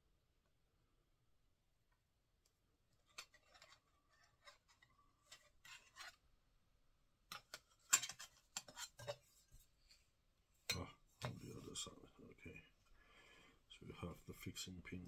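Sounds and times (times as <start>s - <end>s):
plastic parts rubbing and clicking: 3.0s - 6.2s.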